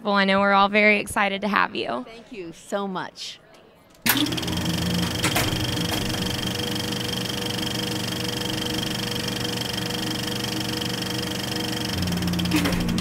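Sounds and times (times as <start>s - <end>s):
film projector whirring and clattering: 4.0s - 13.0s.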